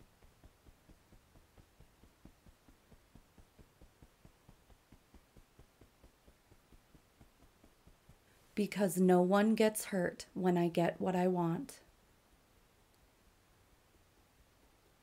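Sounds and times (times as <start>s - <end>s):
fingertips tapping through cloth: 0.0s - 8.5s.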